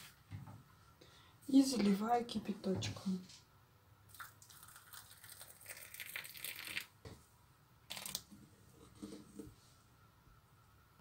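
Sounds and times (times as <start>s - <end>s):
water pouring into teapot: 4.1s - 6.9s.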